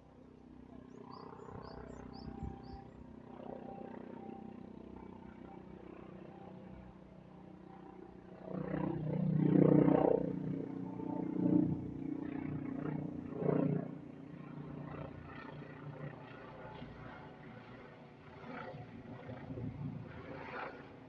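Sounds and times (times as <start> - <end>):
helicopter engine and rotor: 0.0 - 21.0
small birds chirping: 0.8 - 2.9.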